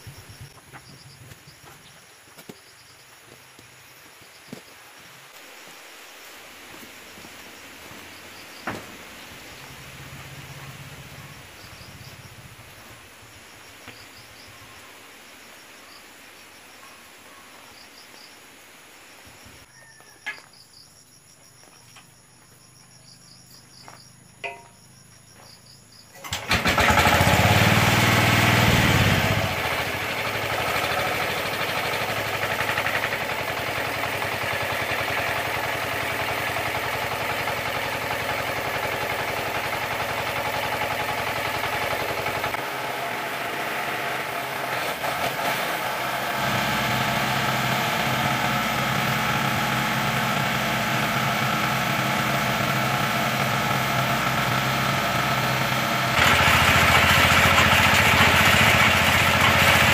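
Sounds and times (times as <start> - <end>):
small engine starting and running: 26.1 - 59.9.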